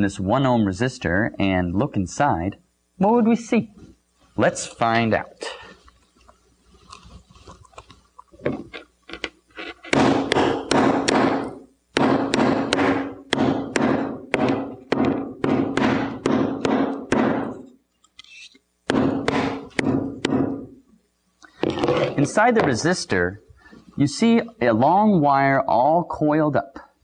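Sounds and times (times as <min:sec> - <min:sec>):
hammer knocking on hard bench: 0:09.9 - 0:17.6, 0:18.9 - 0:20.7.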